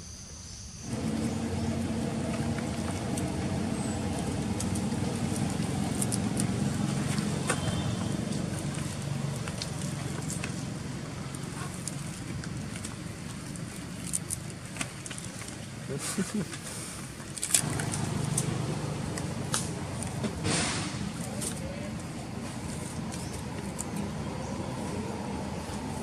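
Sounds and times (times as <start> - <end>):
vehicle engine humming: 0.9 - 14.1, 17.6 - 26.0
monkeys handling dry stalks: 0.9 - 26.0.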